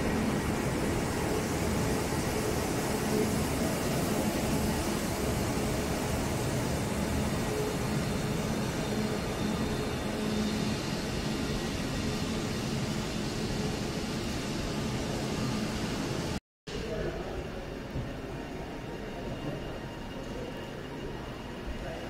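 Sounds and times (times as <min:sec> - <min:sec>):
train humming: 0:00.0 - 0:16.4.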